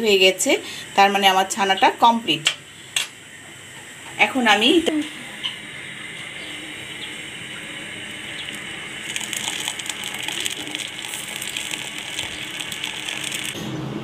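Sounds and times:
liquid pouring into strainer: 9.0 - 13.6.

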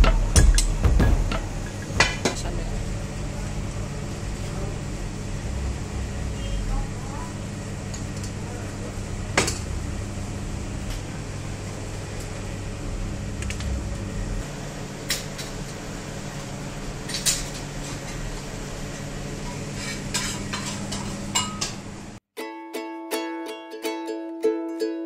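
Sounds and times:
steady low hum: 0.0 - 22.2
metal trays and spoon clinking: 19.5 - 21.8.

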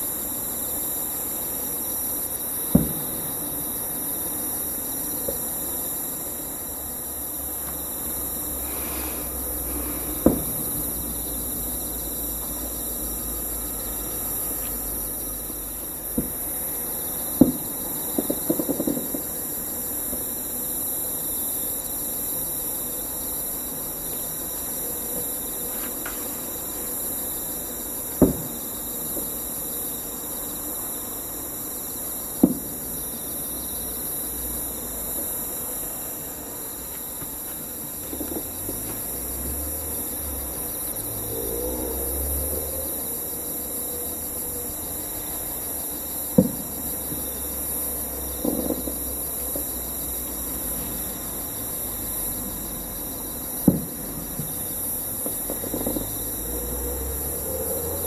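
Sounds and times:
hiss: 0.0 - 58.0
insects trilling: 0.0 - 58.0
distant fireworks booming: 2.6 - 6.4, 7.6 - 20.6, 27.2 - 29.7, 32.3 - 33.1, 36.1 - 49.8, 53.5 - 57.2.

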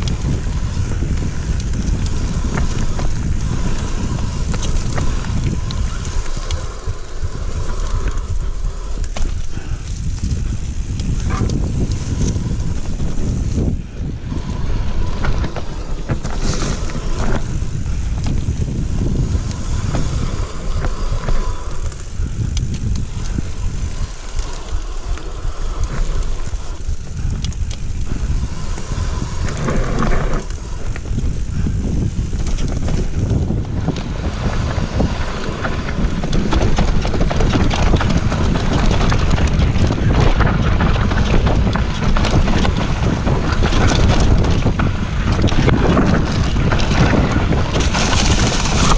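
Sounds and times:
bike rattling over bumps: 0.0 - 48.9
tyres rushing on dirt trail: 0.0 - 48.9
wind buffeting microphone: 0.0 - 48.9.

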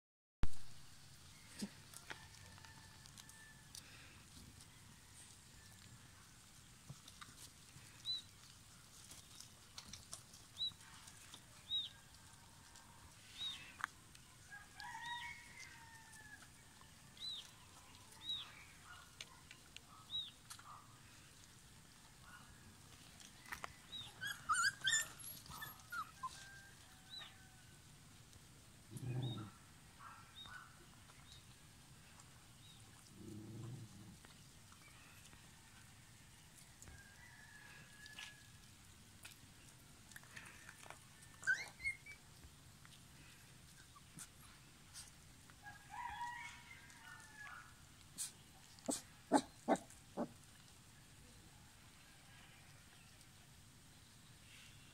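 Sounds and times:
puppies squeaking and whining: 23.9 - 26.4, 41.4 - 42.3.

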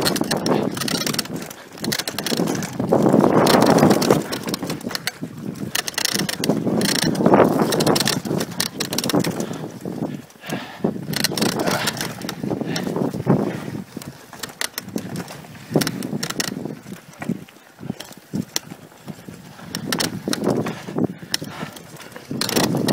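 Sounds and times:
bike rattling over bumps: 0.0 - 22.9
bike tyres on dirt: 0.0 - 22.9.

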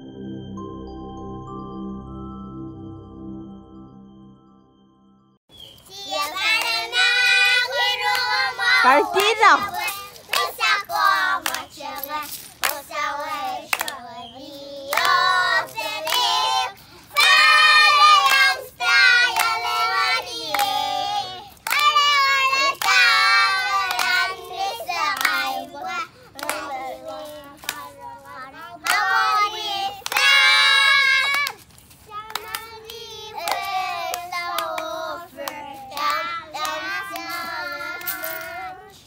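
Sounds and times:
children singing: 5.9 - 31.5, 32.4 - 39.0
hand clapping: 6.1 - 14.1, 14.8 - 16.6, 17.2 - 28.2, 28.8 - 38.6.

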